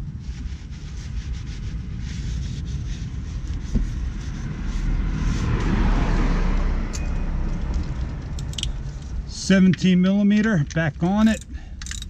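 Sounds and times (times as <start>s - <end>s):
road vehicle passing: 0.7s - 10.2s.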